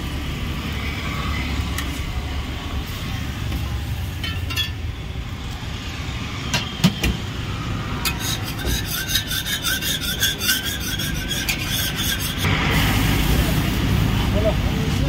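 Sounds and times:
metal spatula scraping griddle: 8.0s - 12.5s.

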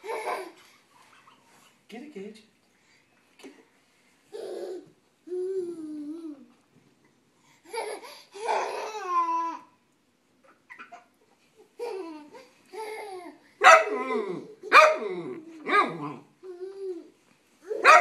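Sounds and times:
dog barking: 13.6s - 15.1s, 17.8s - 18.0s.

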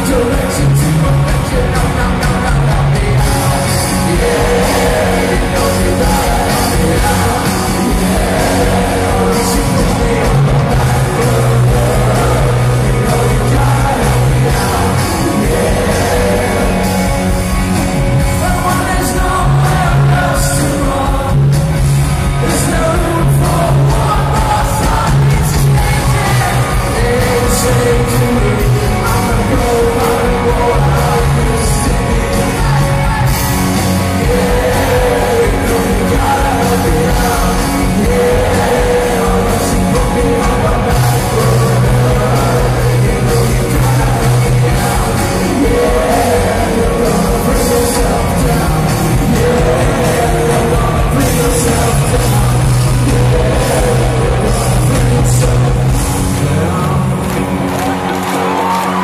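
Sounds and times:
person singing: 0.0s - 57.4s
rock band playing live: 0.0s - 59.0s.

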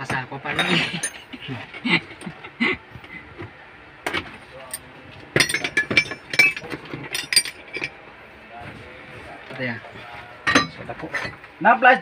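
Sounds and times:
metal tools clinking: 0.5s - 1.4s, 4.6s - 8.0s, 10.4s - 11.5s.

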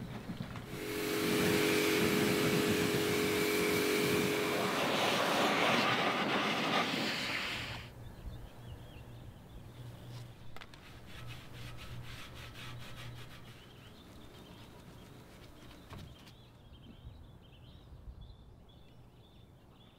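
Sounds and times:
air blower blowing: 0.6s - 7.9s
towel rubbing on metal: 10.8s - 13.9s.

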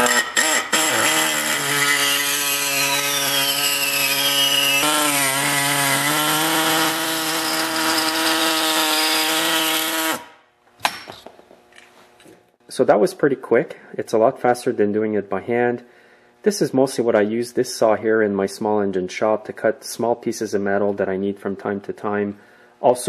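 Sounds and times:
air saw cutting steel: 0.0s - 10.4s.

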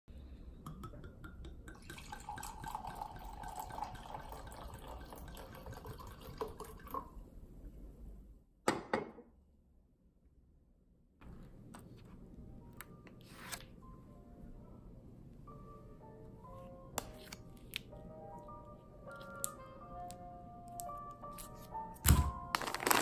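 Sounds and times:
wine pouring into glass: 0.7s - 7.2s.

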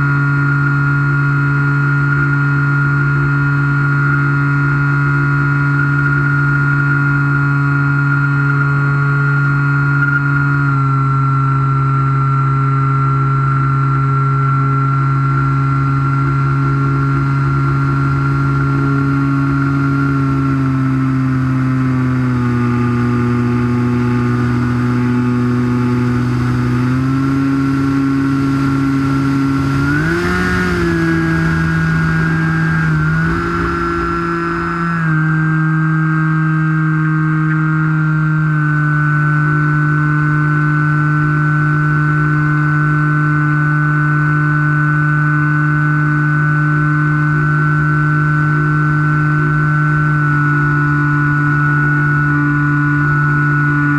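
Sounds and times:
electric motor and propeller whine: 0.0s - 53.9s
wind rush: 24.3s - 35.4s.

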